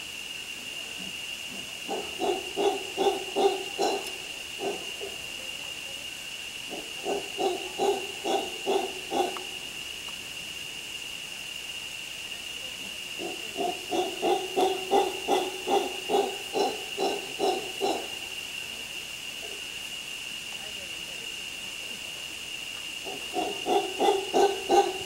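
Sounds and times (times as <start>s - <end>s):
monkey grunting calls: 1.0s - 5.3s, 6.7s - 9.6s, 13.2s - 18.3s, 23.0s - 25.0s.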